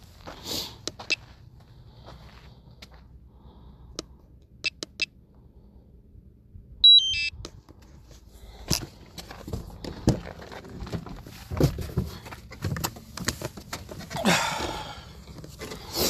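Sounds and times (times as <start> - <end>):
electronic beep sequence: 6.8 - 7.4
scuffing handling noises: 7.7 - 14.3.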